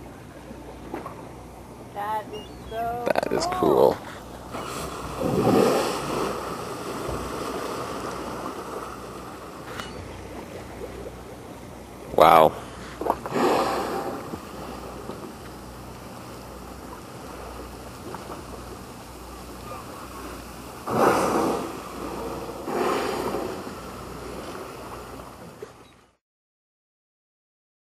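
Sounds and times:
boat engine humming: 0.0 - 26.2
sea noise: 0.0 - 26.2
wind: 0.0 - 26.2.

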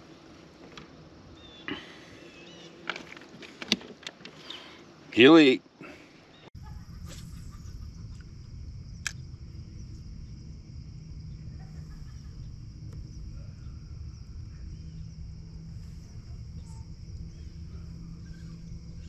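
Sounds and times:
faint high hum: 4.4 - 19.0
low rumble: 6.6 - 19.0.

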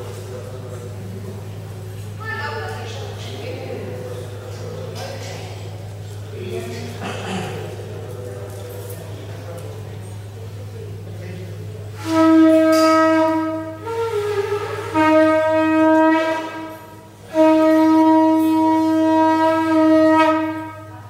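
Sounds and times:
conch shell blasts: 12.0 - 21.0.

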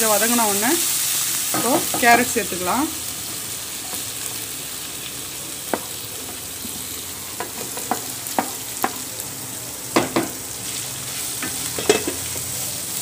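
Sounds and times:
oil sizzling in a pan: 0.0 - 13.0
spatula knocking on pan: 7.4 - 9.0, 10.0 - 10.4.

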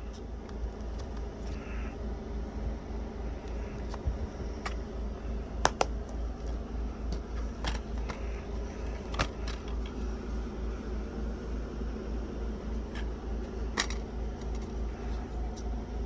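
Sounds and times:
plastic case snapping shut: 5.6 - 6.0, 9.0 - 9.8
plastic cases clicking and tapping: 5.6 - 8.2.

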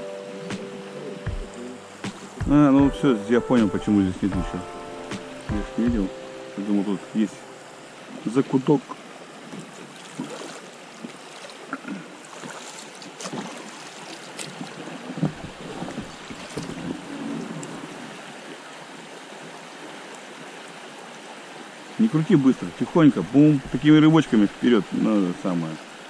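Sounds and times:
river water rippling: 0.0 - 26.0
light knocks on boat: 15.2 - 17.0.

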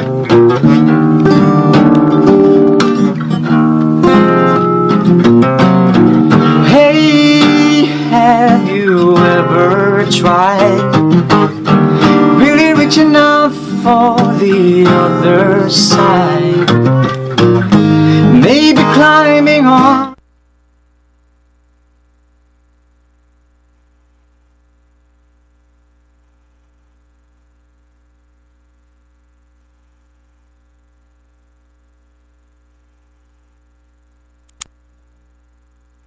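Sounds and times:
acoustic guitar playing: 0.0 - 20.2
young man singing: 6.4 - 11.0, 12.0 - 16.8, 18.0 - 20.2.

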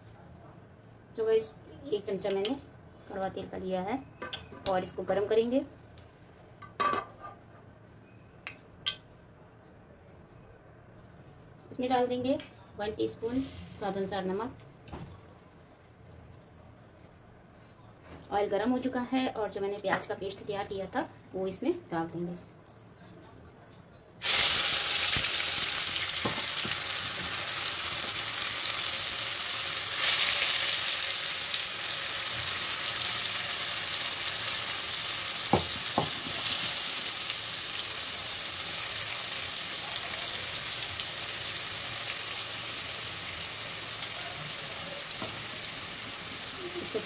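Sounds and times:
paste sizzling in hot oil: 24.2 - 47.0.

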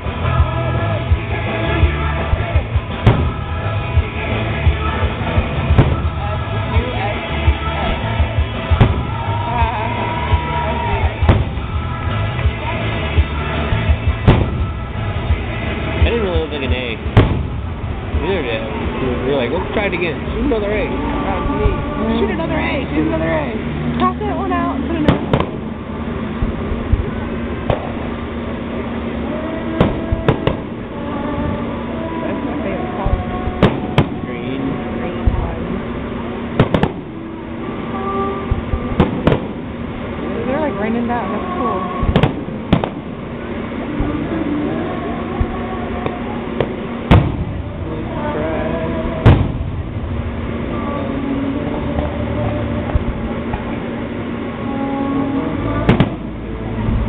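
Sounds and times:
continuous background din: 0.0 - 57.0
fireworks bursting with bangs: 0.0 - 57.0
steady low hum: 0.0 - 57.0.

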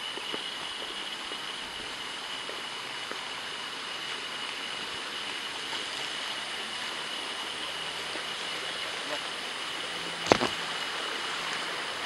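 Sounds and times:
even hiss: 0.0 - 12.0
rustling through undergrowth: 10.2 - 10.6.

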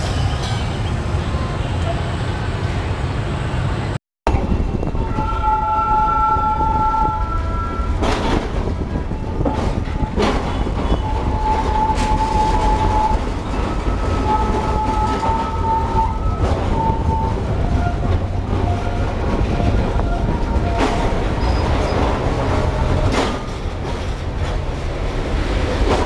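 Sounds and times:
tram rumbling: 0.0 - 26.0
wheel and track clacks: 7.9 - 26.0.

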